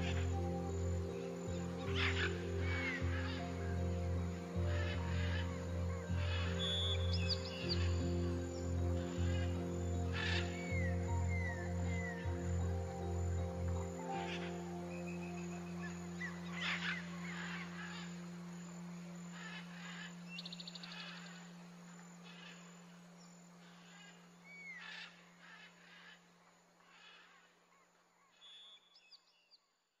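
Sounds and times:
birds chirping: 0.0 - 26.2.

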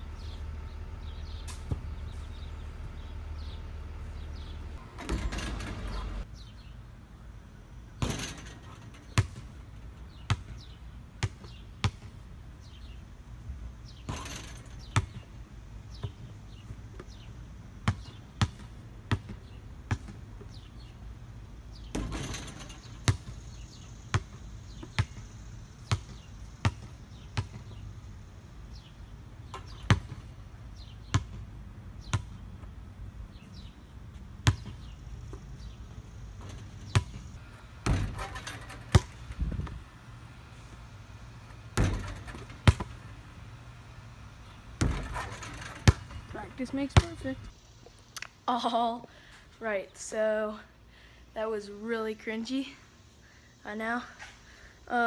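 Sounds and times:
basketball bouncing on asphalt: 9.0 - 13.0, 13.9 - 21.0, 21.8 - 28.8, 29.4 - 39.9, 41.5 - 43.3, 44.5 - 47.4
rough scraping noises: 36.3 - 39.8, 44.8 - 47.5.

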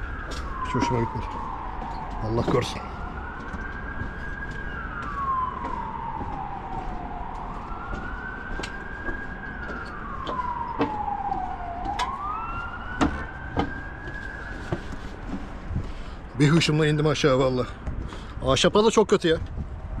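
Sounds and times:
emergency vehicle siren wailing: 0.0 - 20.0
sharp knocks: 13.0 - 13.8.

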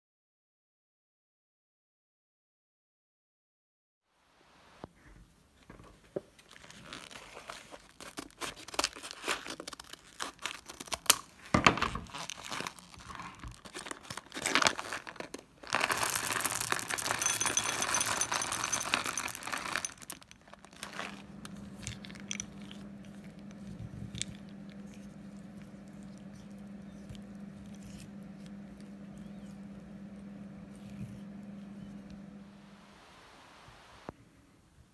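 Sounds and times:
packet crinkling and tearing: 6.4 - 29.6
chocolate buttons rattling into bowl: 14.6 - 21.2, 21.8 - 22.8
steady low hum: 20.7 - 34.1.

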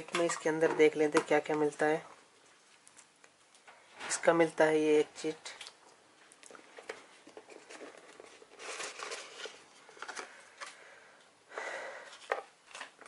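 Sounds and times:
cardboard packaging rustling: 6.6 - 10.8, 12.1 - 13.0.

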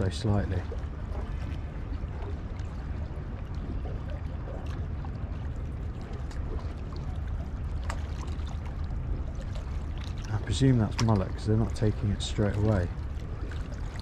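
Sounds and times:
water lapping: 0.0 - 14.0
faint clicks: 10.0 - 11.4.

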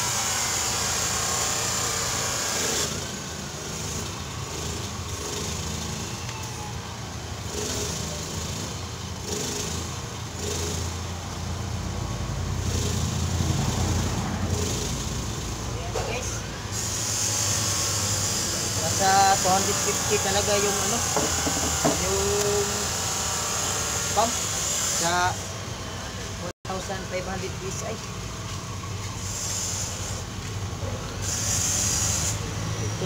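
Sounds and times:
hand pump air rushes: 16.7 - 24.3.

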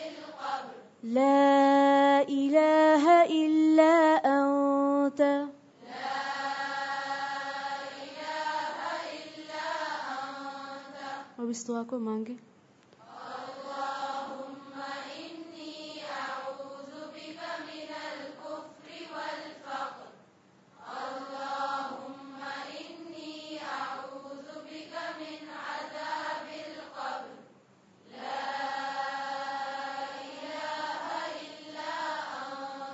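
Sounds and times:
person chanting: 1.0 - 5.5.

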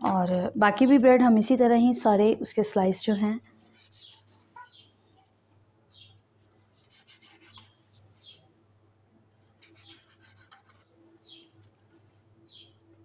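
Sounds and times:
knife sawing through bread: 3.6 - 4.6, 6.7 - 8.3, 9.4 - 10.9.

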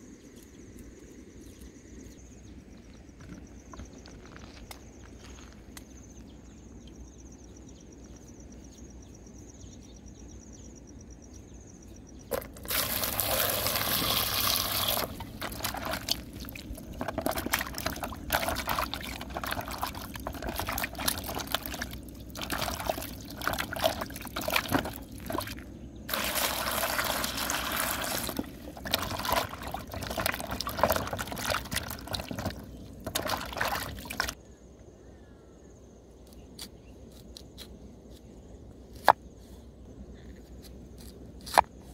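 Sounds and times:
faint high insect trill: 0.0 - 16.6, 34.4 - 40.9
hands scrubbing radishes in water: 12.3 - 34.4.

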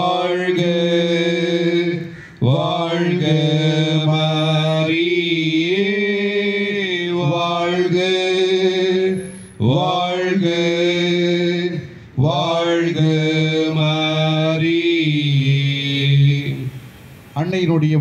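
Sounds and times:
breath between notes: 2.0 - 2.4, 11.8 - 12.2.

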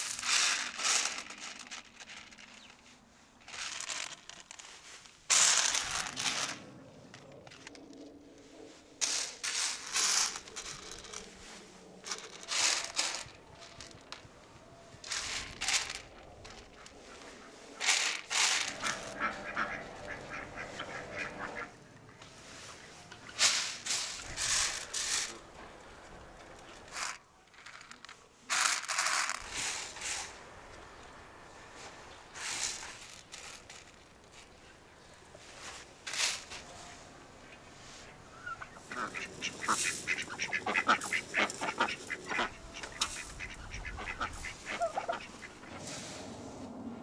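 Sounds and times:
lentils rattling on metal tray: 0.0 - 2.8, 3.4 - 7.8, 9.0 - 14.2, 15.0 - 17.2, 17.8 - 21.5, 23.3 - 25.5, 26.9 - 30.4, 32.4 - 34.0, 36.1 - 36.6, 38.9 - 43.5
bird calling: 18.6 - 23.4, 37.5 - 45.9.

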